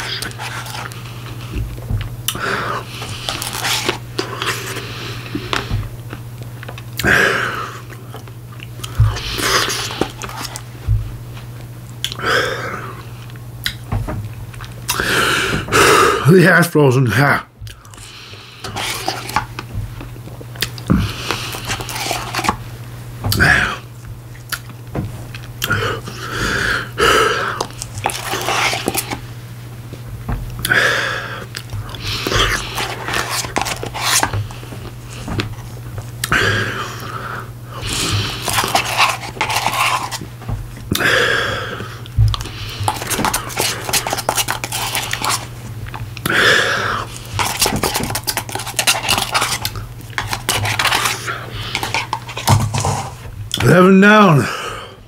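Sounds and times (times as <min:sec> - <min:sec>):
chewing: 0:11.9 - 0:12.2, 0:17.7 - 0:22.6, 0:23.3 - 0:26.2, 0:27.4 - 0:29.2, 0:37.8 - 0:41.1, 0:41.7 - 0:52.5
spoon scraping in cup: 0:18.6 - 0:19.5, 0:21.5 - 0:22.6, 0:28.0 - 0:29.2, 0:32.2 - 0:34.3, 0:38.4 - 0:40.2, 0:42.9 - 0:45.5, 0:47.3 - 0:52.5
heavy breaths: 0:25.6 - 0:27.8, 0:40.9 - 0:43.9.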